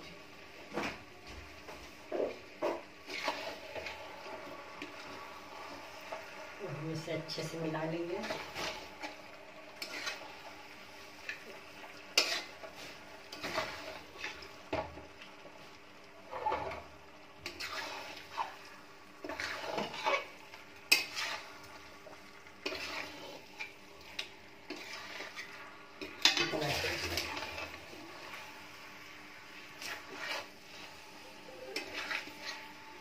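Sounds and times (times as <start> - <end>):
metal spatula scraping a metal pan: 2.2 - 6.3, 7.2 - 10.5, 11.2 - 14.5, 16.2 - 18.6, 19.2 - 28.5, 29.5 - 33.0.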